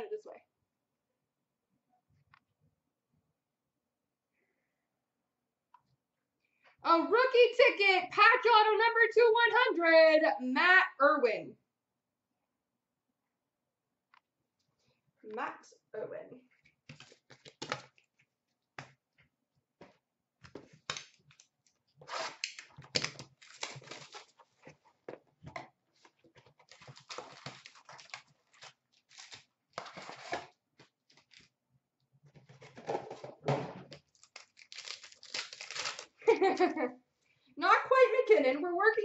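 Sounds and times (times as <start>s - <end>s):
tearing cardboard and wrappers: 20.7s - 24.8s, 26.0s - 31.5s, 33.9s - 36.3s.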